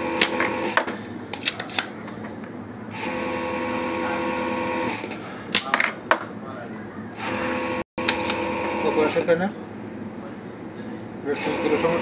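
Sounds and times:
machine humming: 2.9s - 5.1s, 7.1s - 9.2s.

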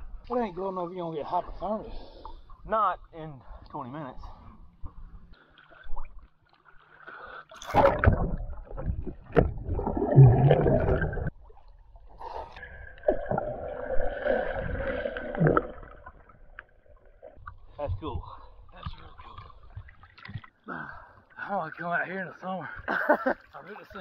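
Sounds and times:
splash into water: 7.6s - 11.3s
muffled underwater rushing and bubbling: 7.6s - 20.0s.

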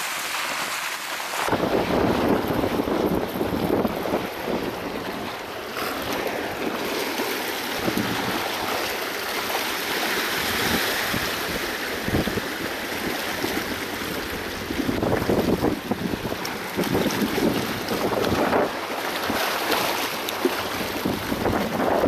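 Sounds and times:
sea waves breaking on rocks: 0.0s - 22.0s
wind buffeting microphone: 1.4s - 6.8s, 7.8s - 8.9s, 10.4s - 19.5s, 20.6s - 22.0s.

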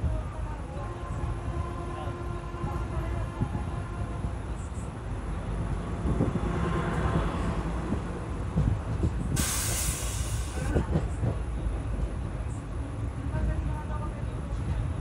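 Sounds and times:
train passing close by: 0.0s - 15.0s
train rumbling on track: 0.0s - 15.0s
rush of hissing air: 9.3s - 10.8s.

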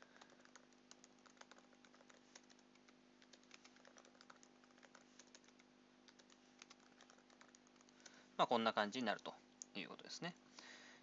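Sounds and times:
typing on computer keyboard: 0.0s - 8.2s
faint steady hum: 0.0s - 11.0s.

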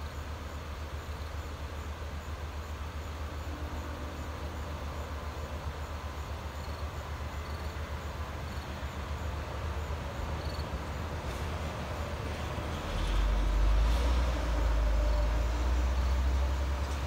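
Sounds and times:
truck engine rumbling: 4.0s - 17.0s.

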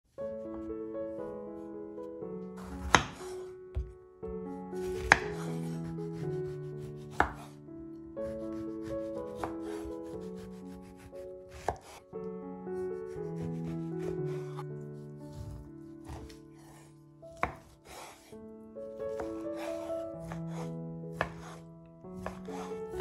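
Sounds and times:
background music: 0.1s - 23.0s
knife chopping on wooden board: 2.6s - 3.9s, 4.9s - 5.8s, 7.0s - 7.5s, 9.3s - 12.0s, 13.2s - 14.6s, 15.3s - 18.3s, 19.1s - 21.6s, 22.2s - 23.0s.

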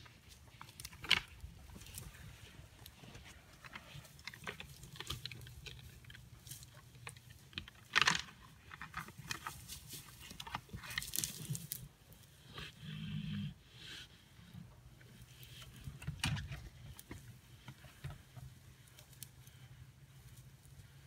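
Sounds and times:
dry grass rustling: 0.0s - 12.8s, 14.8s - 21.0s.

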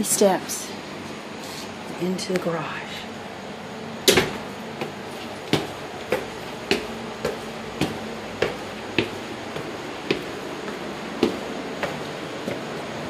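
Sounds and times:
clicking footsteps: 4.1s - 13.0s.

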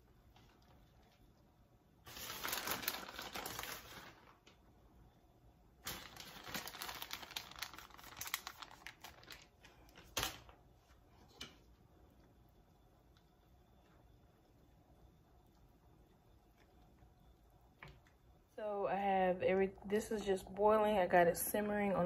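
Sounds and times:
plastic bag crinkling: 2.0s - 4.6s, 5.8s - 10.6s.

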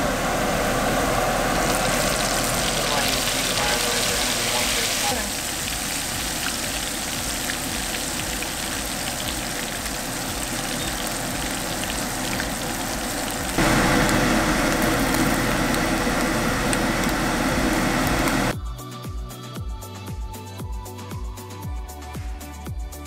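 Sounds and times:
fish deep-frying in oil: 0.1s - 18.5s.

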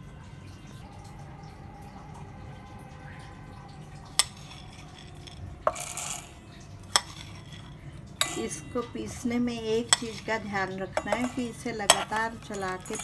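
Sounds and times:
seeds rattling into steel jar: 4.2s - 8.8s, 9.8s - 13.0s.

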